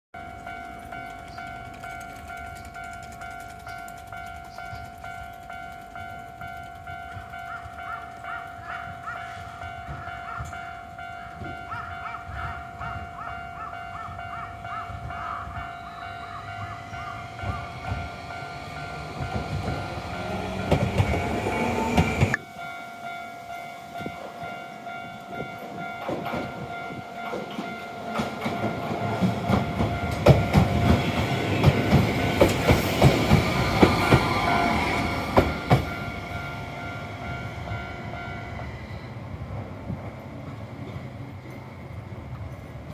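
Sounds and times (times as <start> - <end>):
wheels clattering over rail joints: 0.2 - 10.6, 16.4 - 22.4, 25.6 - 36.8
level crossing warning bell: 0.2 - 39.5
tram running on rails: 0.2 - 42.9.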